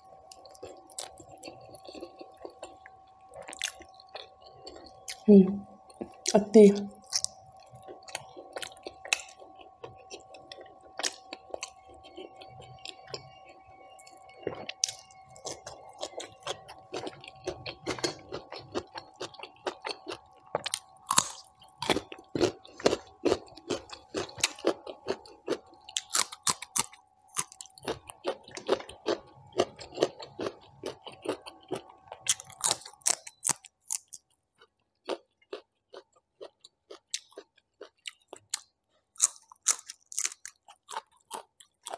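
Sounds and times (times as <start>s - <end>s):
faint hum: 0.0s - 33.4s
person chewing food: 0.0s - 41.9s
crunchy bites of vegetable: 17.0s - 34.2s, 35.1s - 41.9s.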